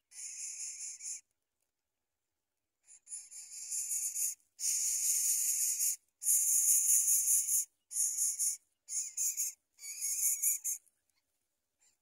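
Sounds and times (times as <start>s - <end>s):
nestlings begging with raspy calls: 7.5s - 10.8s.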